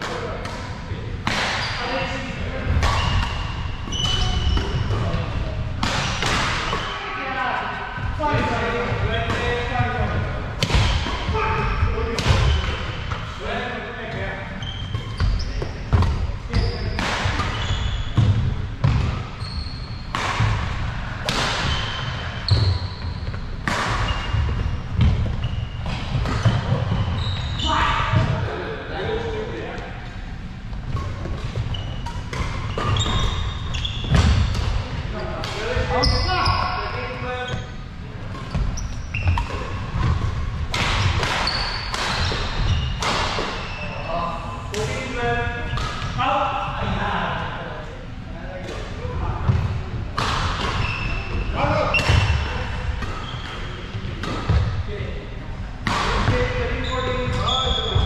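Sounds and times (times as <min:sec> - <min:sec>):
shoes squeaking on court: 0:02.7 - 0:05.4, 0:14.6 - 0:20.2, 0:21.6 - 0:28.3, 0:30.5 - 0:34.6, 0:35.8 - 0:44.1, 0:50.6 - 0:54.6, 0:56.3 - 0:58.0
racket hitting shuttlecock: 0:20.1 - 0:22.0, 0:39.2 - 0:43.6.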